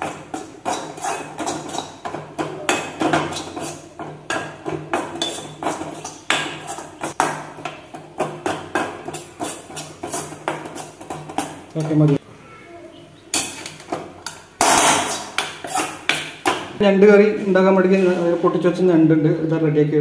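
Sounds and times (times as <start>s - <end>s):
steel spoon scraping metal pan: 0.0s - 12.0s, 13.3s - 16.7s.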